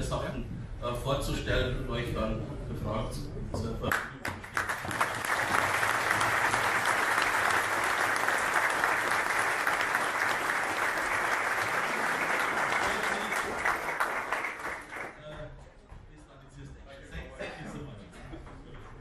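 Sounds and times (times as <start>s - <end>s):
audience applauding: 3.9s - 15.2s.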